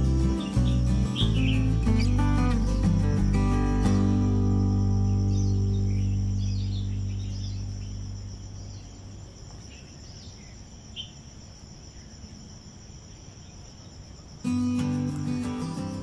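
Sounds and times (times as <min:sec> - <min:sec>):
guitar music: 0:00.0 - 0:08.7, 0:14.5 - 0:16.0
crickets droning: 0:00.0 - 0:16.0.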